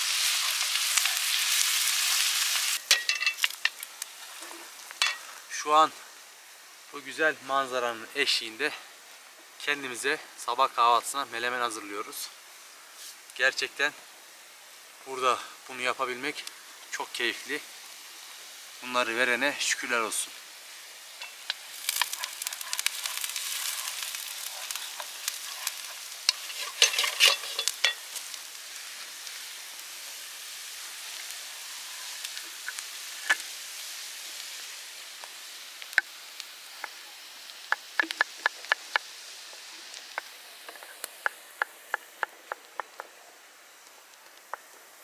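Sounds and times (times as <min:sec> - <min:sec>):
onion sizzling in oil: 0:00.0 - 0:45.0
wooden spoon stirring clatter: 0:21.2 - 0:28.0.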